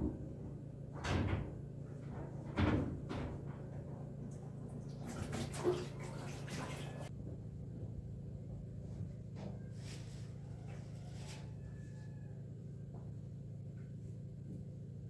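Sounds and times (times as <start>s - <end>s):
low room hum: 0.0s - 15.0s
water running into sink: 4.8s - 7.1s.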